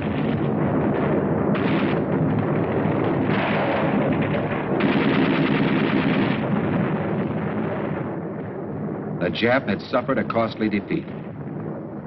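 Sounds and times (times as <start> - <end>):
rapid gunfire: 0.0 - 8.0
machine-gun fire: 0.0 - 8.1.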